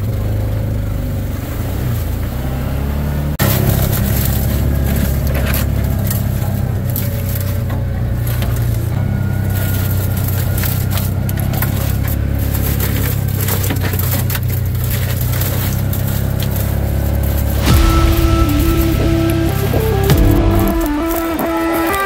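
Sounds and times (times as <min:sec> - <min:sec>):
utility vehicle engine running: 0:00.0 - 0:22.0
brush scraping against vehicle: 0:03.4 - 0:17.8.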